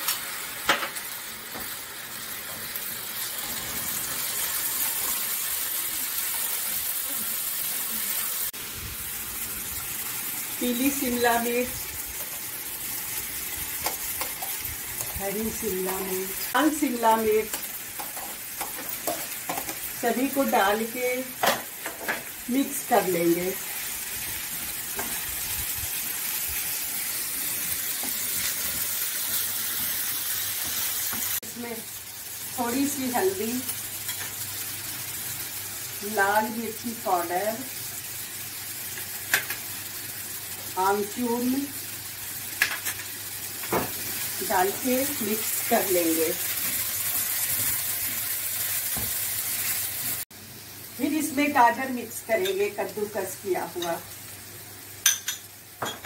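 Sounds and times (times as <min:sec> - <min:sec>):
vegetables sizzling in oil: 0:00.0 - 0:56.0.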